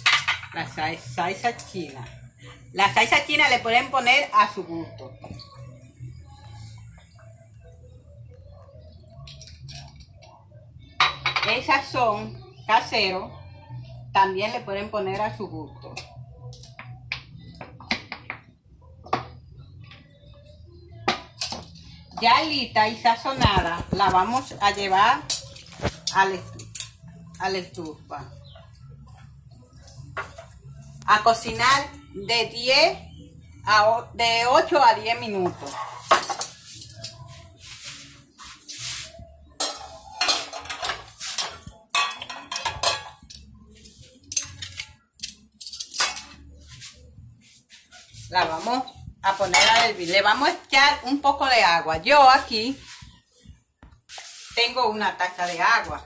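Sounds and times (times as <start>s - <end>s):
metal tongs clinking on glass dish: 25.2s - 27.0s, 39.6s - 43.5s, 44.2s - 46.4s.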